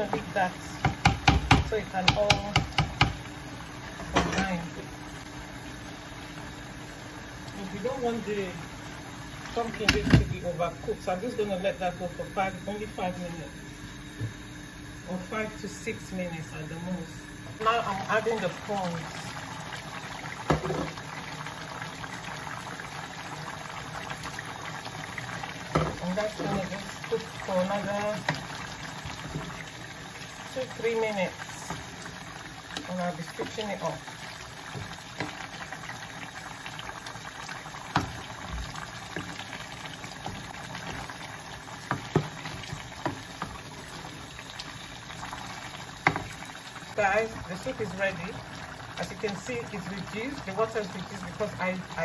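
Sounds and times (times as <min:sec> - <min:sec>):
wooden spoon knocking on pot: 0:00.0 - 0:03.2
soup simmering and bubbling: 0:00.0 - 0:16.2, 0:17.2 - 0:52.0
wooden spoon stirring: 0:37.9 - 0:44.3.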